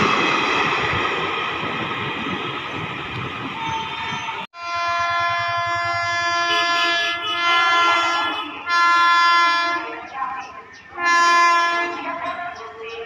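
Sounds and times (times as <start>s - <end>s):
train horn blasts: 3.6s - 10.0s, 11.0s - 12.4s.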